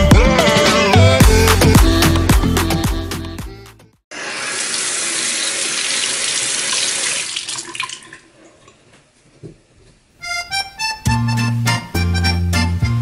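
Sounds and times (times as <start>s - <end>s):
tap water running into sink: 4.2s - 8.8s.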